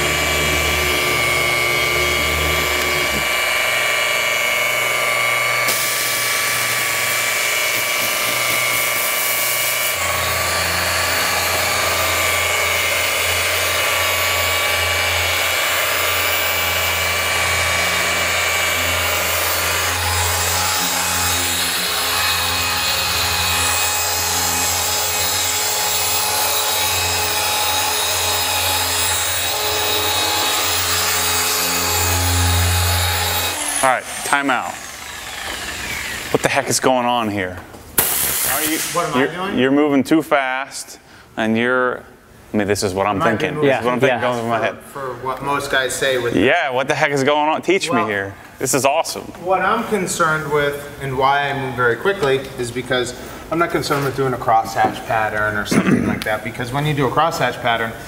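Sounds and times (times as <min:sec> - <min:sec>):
machine polisher running: 0:00.0 - 0:36.7.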